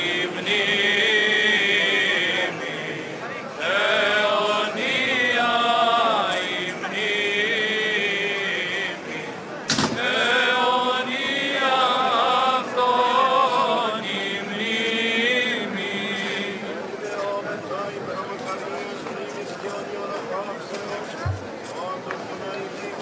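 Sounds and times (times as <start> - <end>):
voices chanting ornamented melody: 0.0 - 17.6.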